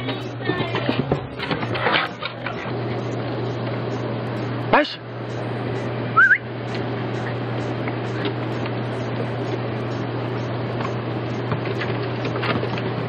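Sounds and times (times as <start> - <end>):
machine hum with hiss: 0.0 - 13.0.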